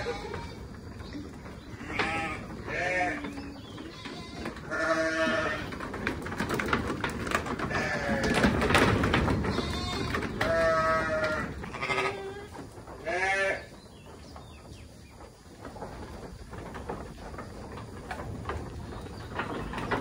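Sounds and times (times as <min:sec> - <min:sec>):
livestock bleating: 0:00.0 - 0:00.6, 0:01.8 - 0:05.7, 0:07.7 - 0:08.5, 0:09.5 - 0:13.7.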